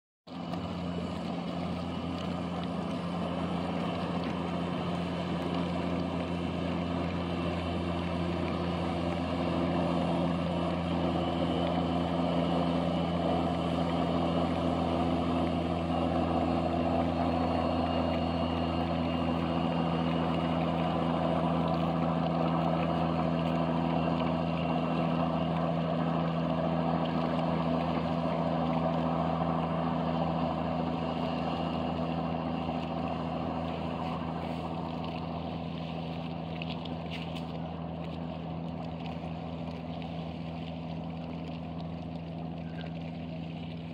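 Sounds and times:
boat engines droning: 0.3 - 43.9.

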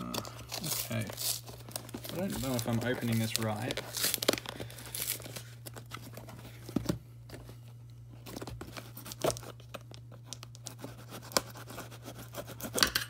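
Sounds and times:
cardboard cracking and tearing: 0.0 - 6.3, 8.2 - 12.3
cardboard rustling and crinkling: 0.1 - 11.6.

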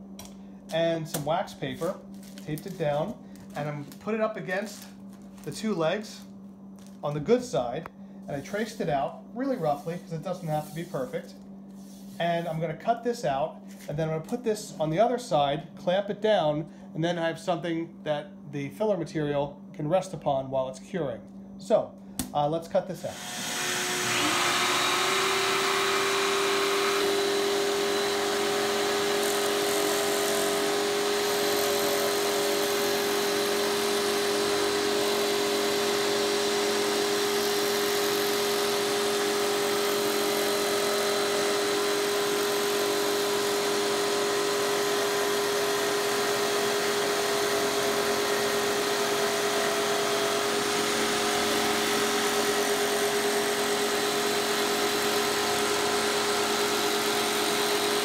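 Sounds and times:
scroll saw cutting plywood: 23.0 - 58.0.

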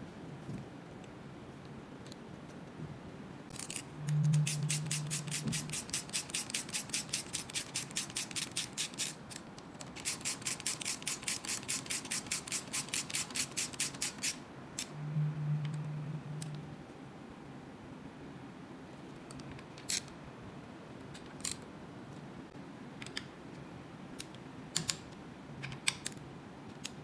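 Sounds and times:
low hum: 3.5 - 6.0, 14.8 - 18.0.

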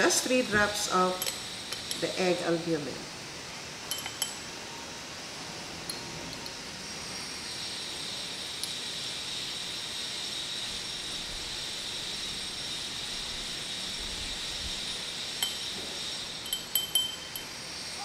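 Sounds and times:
steady hiss: 0.0 - 18.0
glass dropper clinking beaker: 3.9 - 4.4, 15.4 - 15.8, 16.4 - 17.6.

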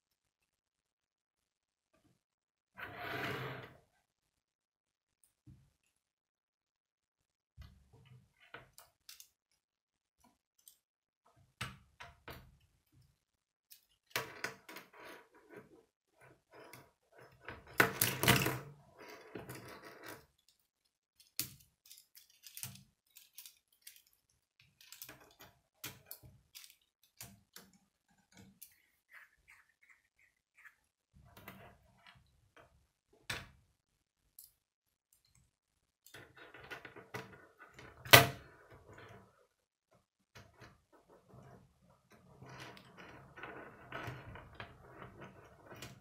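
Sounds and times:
plastic pieces clicking together: 21.2 - 27.7.

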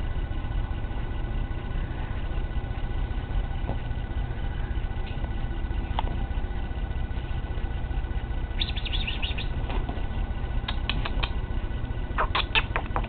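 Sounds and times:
steady low rumble: 0.0 - 13.0
puppy squeaking: 12.2 - 12.9.

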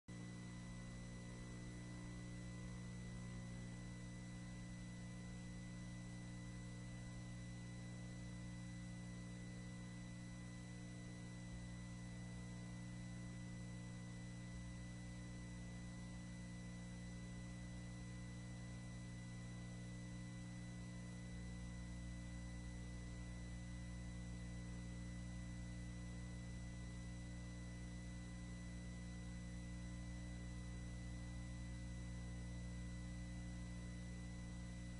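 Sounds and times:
electrical mains hum: 0.1 - 34.9.

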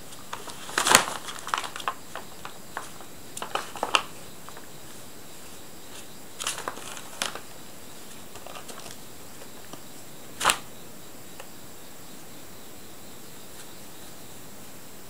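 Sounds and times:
paper bag rustling: 0.0 - 9.8, 10.4 - 10.7
faint steady hiss: 0.0 - 15.0.

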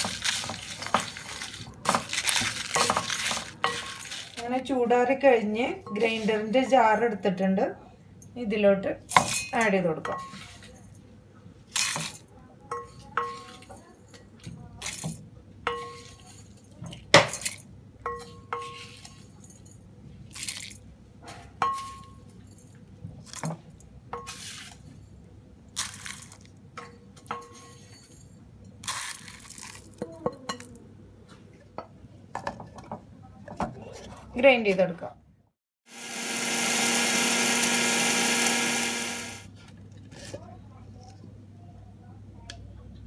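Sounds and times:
dry seeds rattling: 0.0 - 4.5.

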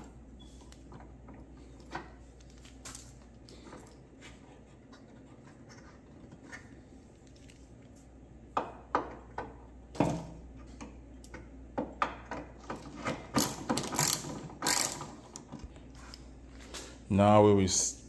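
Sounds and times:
ratchet clinking and clicking: 13.3 - 15.1.

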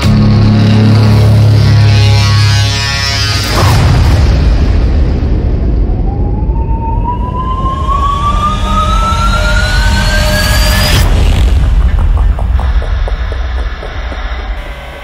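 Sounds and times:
sharp hit: 0.0 - 8.7
low drone: 0.0 - 15.0
rising tone: 5.8 - 11.2.

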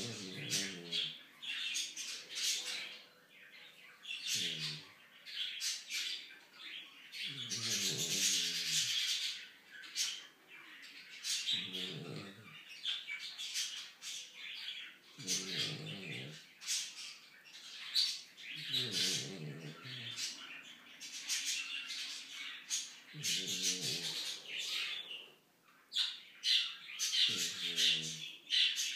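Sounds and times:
dog groaning: 0.0 - 1.2, 4.3 - 4.8, 7.3 - 9.0, 11.5 - 12.6, 15.2 - 16.4, 18.6 - 20.3, 23.1 - 25.1, 27.3 - 28.3.

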